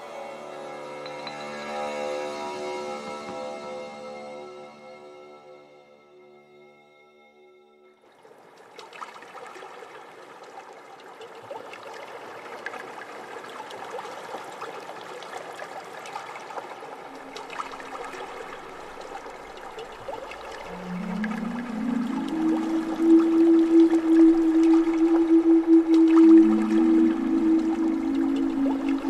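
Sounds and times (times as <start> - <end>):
electronic trickling crackling noise: 17.1 - 29.0
held musical notes: 20.6 - 29.0.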